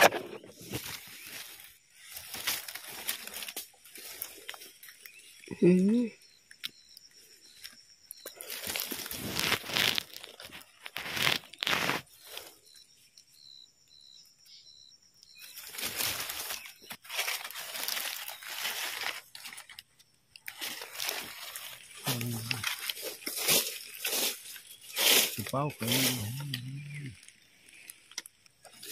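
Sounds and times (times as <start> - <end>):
dry leaves crackling and rustling: 0.0 - 5.5, 7.6 - 12.6, 15.4 - 28.9
knife scraping and cutting stems: 8.5 - 12.5, 20.4 - 27.0.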